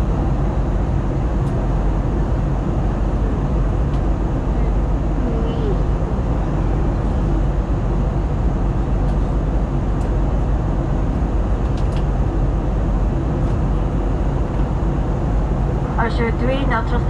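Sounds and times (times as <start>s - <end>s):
aircraft cabin engine and airflow rush: 0.0s - 17.0s.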